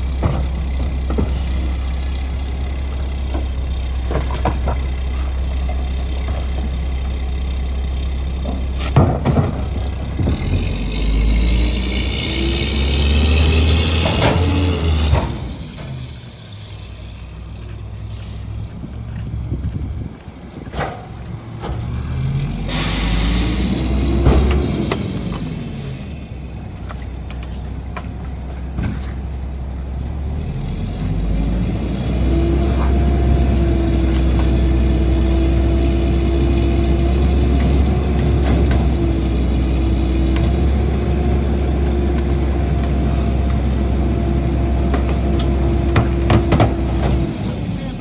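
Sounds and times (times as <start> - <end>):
diesel engine rumble: 0.0 - 48.0.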